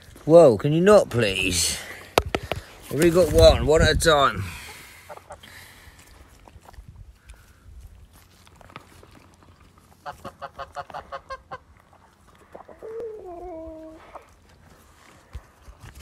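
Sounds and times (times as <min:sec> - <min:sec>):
goose cackling: 0:10.0 - 0:11.7.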